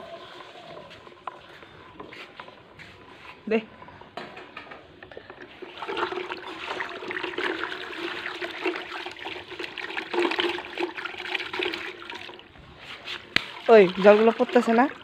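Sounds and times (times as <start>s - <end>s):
water sloshing in a plastic bucket: 5.0s - 15.0s.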